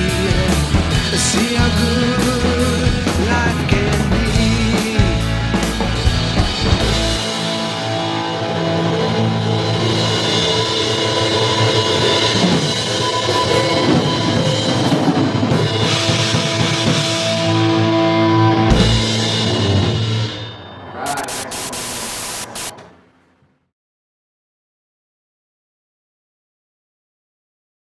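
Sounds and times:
bass guitar: 0.0s - 12.8s, 15.4s - 22.4s
distorted electric guitar: 0.0s - 22.8s
drum kit: 0.0s - 22.8s.

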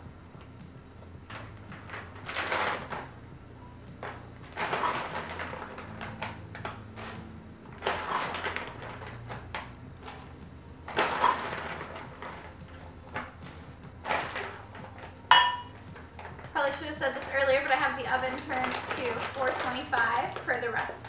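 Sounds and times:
food pouch rustling: 4.0s - 16.5s, 17.1s - 21.0s.

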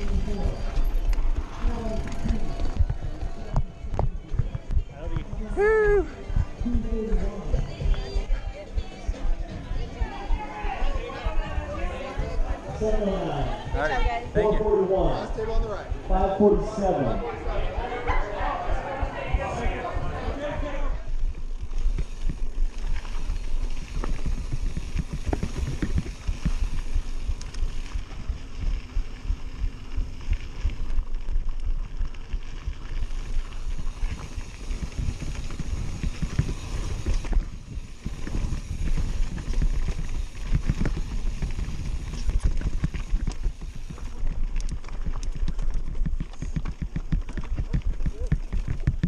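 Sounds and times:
bike rattling over rocks: 0.0s - 8.4s, 19.1s - 49.0s
wind rumbling on microphone: 0.0s - 49.0s.

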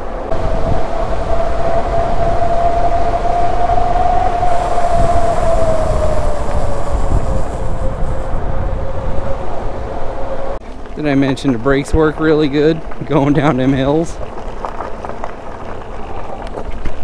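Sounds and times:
wind rumbling on microphone: 0.0s - 17.0s
electric motor whine: 0.3s - 10.6s.

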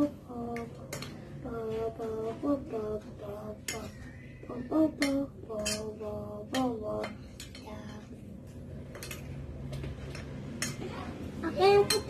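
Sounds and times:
fork clinking against ceramic bowls: 3.6s - 4.1s, 5.0s - 8.0s, 11.8s - 12.0s.

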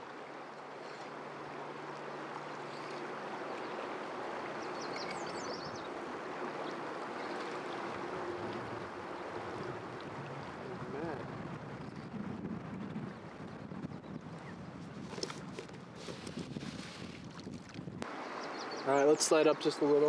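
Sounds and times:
river current rushing: 0.0s - 11.8s, 18.0s - 20.0s.

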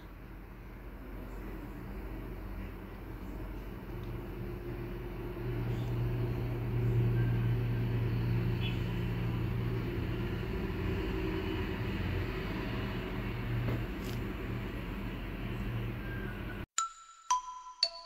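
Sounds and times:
low mechanical hum: 0.0s - 16.6s.

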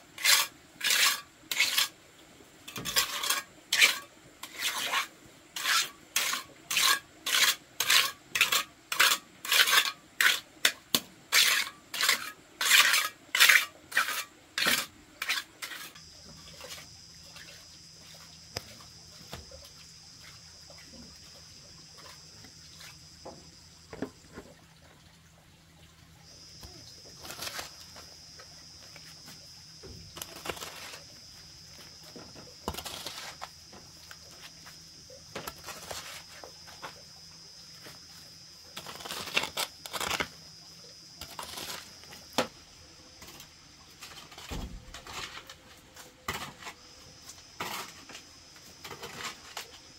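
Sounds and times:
hand tool scraping wet mud: 0.0s - 2.0s, 2.7s - 19.5s, 27.2s - 28.1s, 30.1s - 31.2s, 32.6s - 33.6s, 35.4s - 36.5s, 38.7s - 40.4s, 41.2s - 42.5s, 46.2s - 48.2s, 48.8s - 49.9s
hoe scraping wet mud: 0.0s - 2.0s, 2.7s - 19.5s, 27.0s - 28.2s, 30.1s - 34.6s, 35.4s - 37.0s, 38.7s - 40.4s, 41.2s - 42.4s, 43.2s - 49.9s.

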